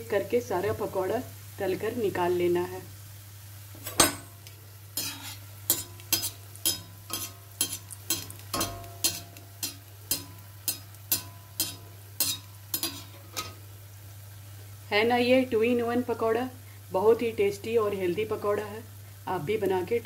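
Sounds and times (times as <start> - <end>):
oil sizzling faintly: 0.0 - 20.0
steel spoon clinking against pan: 5.0 - 13.6.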